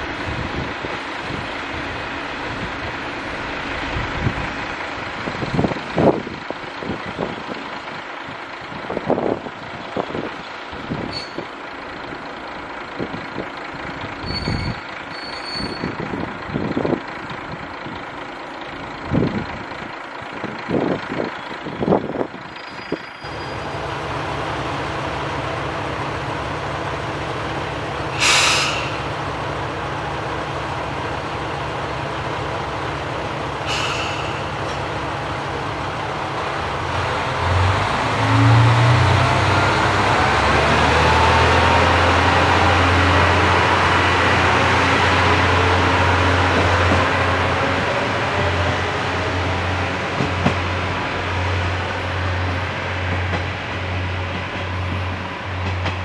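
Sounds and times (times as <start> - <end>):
diesel railcar drawing away: 0.0 - 56.0
diesel railcar engine idling: 0.0 - 56.0
brake air hiss: 28.1 - 29.1, 33.6 - 34.6.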